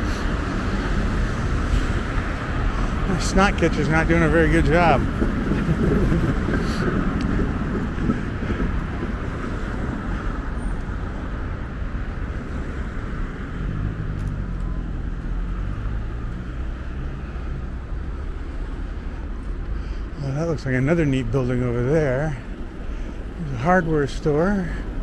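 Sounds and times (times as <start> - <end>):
passing cars: 0.0 - 25.0
vehicle engine low hum: 0.0 - 25.0.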